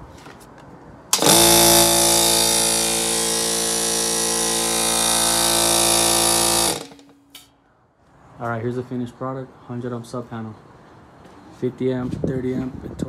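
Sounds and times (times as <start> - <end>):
air compressor humming: 1.1 - 7.5.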